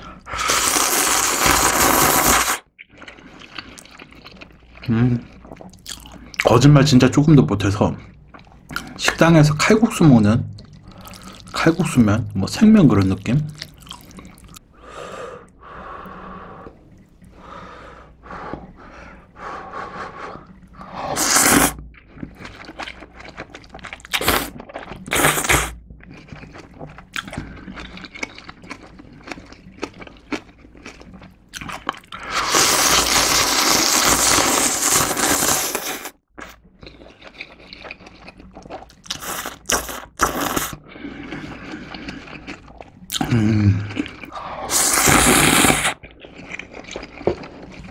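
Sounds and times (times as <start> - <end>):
slurping noodles: 0.0 - 6.2, 19.2 - 25.8, 31.6 - 47.9
wet chewing and crunching: 0.2 - 6.5, 13.0 - 14.6, 21.6 - 47.9.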